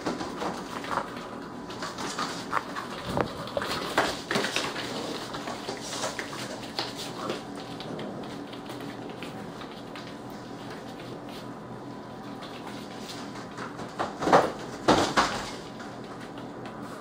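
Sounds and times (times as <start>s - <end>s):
puppies scuffling: 0.0s - 17.0s.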